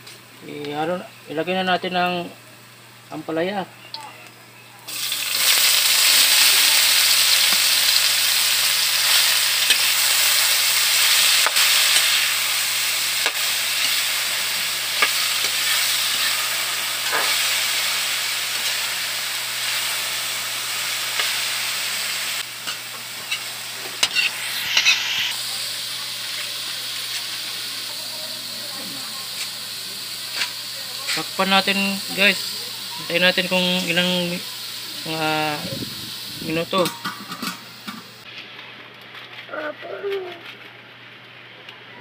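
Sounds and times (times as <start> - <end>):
vegetables sizzling in hot oil: 4.9 - 38.3
metal spatula scraping wok: 15.0 - 17.6, 22.6 - 25.4.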